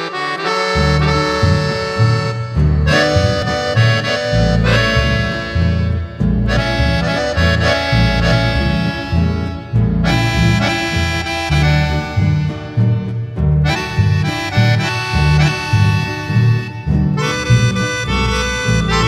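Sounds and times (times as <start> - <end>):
accordion melody: 0.0 - 19.0
double bass: 0.0 - 19.0.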